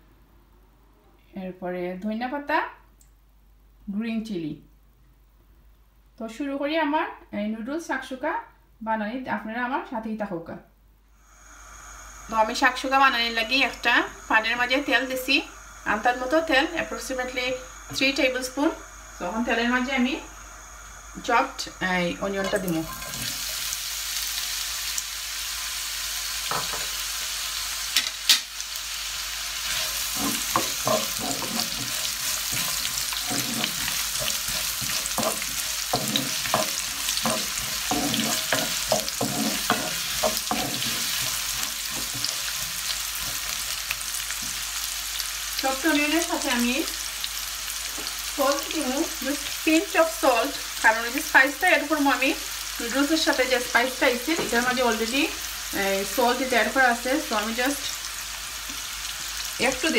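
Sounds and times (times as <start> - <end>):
onions sizzling in oil: 11.2 - 59.9
wooden spoon scraping pan: 29.6 - 43.7.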